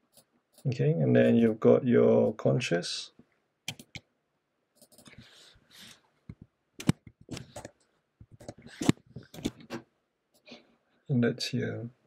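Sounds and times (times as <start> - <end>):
mouse and keyboard clicks: 3.7 - 4.0, 6.3 - 9.8.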